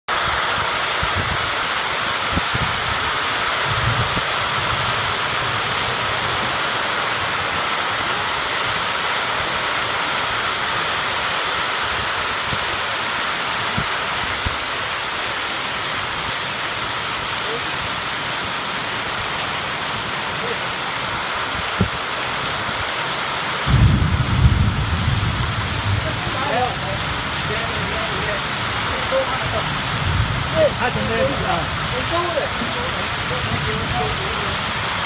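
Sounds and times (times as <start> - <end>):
torrential rain pouring: 0.1 - 35.0
wind buffeting microphone: 0.6 - 5.7, 23.7 - 26.4, 28.6 - 32.0.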